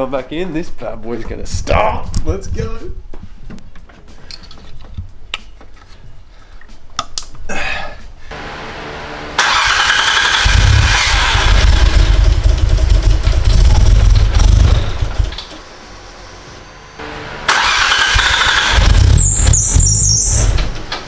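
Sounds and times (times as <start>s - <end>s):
car engine cranking and running: 8.4s - 15.6s, 17.0s - 21.0s.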